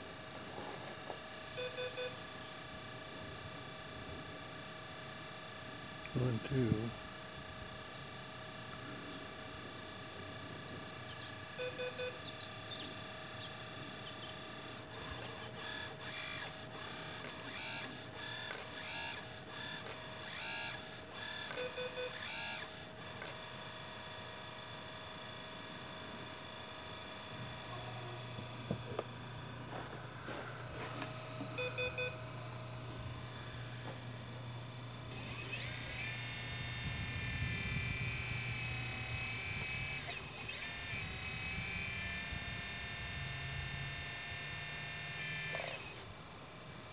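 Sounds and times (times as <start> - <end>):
high-pitched hydraulic pump whine: 0.0 - 46.9
short beeps: 1.5 - 2.8, 11.0 - 36.6.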